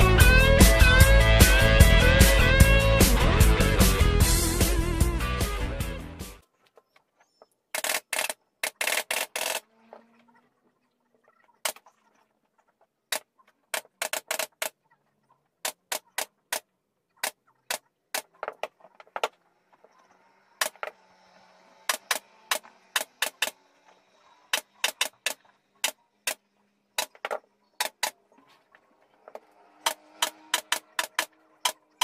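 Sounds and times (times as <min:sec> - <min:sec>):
pneumatic staple gun firing: 0:21.8 - 0:23.6.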